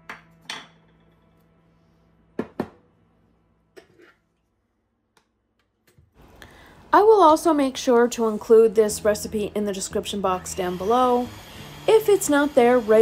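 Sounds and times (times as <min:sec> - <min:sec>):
utensils knocking on countertop: 0:00.0 - 0:01.0, 0:02.4 - 0:02.8.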